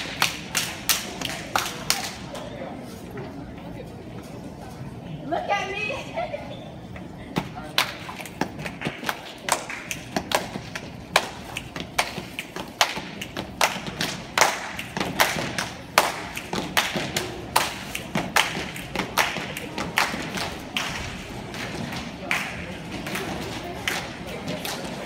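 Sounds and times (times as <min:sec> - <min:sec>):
stomps claps and body slaps: 0:07.8 - 0:23.3.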